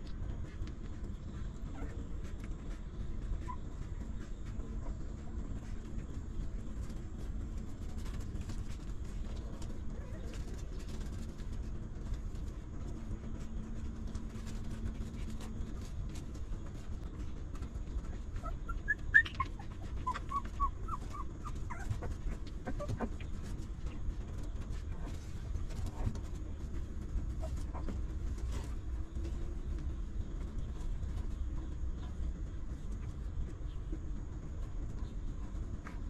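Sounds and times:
low background rumble: 0:00.0 - 0:36.0
puppies squeaking and whimpering: 0:18.3 - 0:23.4.

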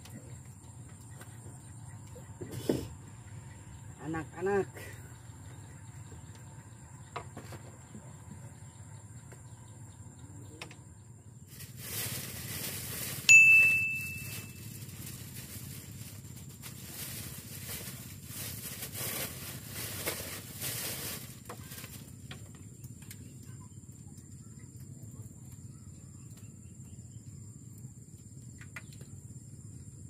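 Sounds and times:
sharp metallic ding: 0:13.3 - 0:14.5.

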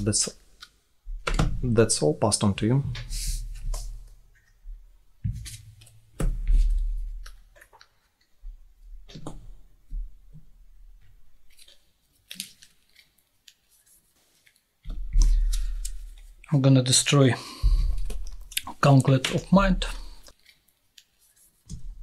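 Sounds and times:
playing cards clicking and rustling: 0:11.4 - 0:16.5.

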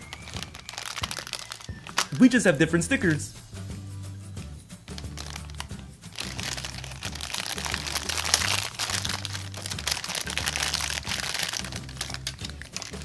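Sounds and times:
plastic parts clicking and scraping: 0:00.0 - 0:02.2, 0:05.2 - 0:13.0
background music with bass: 0:00.0 - 0:13.0.

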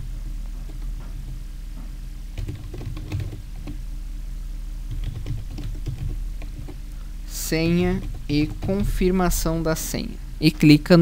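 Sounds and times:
low background hum: 0:00.0 - 0:11.0
keyboard typing: 0:02.4 - 0:03.8, 0:04.9 - 0:06.9, 0:07.5 - 0:09.4.

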